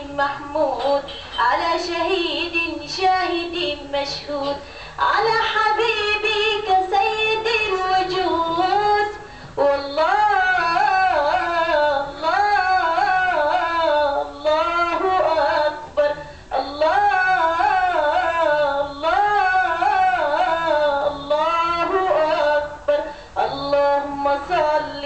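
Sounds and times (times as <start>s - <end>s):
girl singing unaccompanied: 0.0s - 25.0s
short breaths: 4.6s - 5.0s, 9.2s - 9.6s, 16.2s - 16.5s, 23.0s - 23.4s.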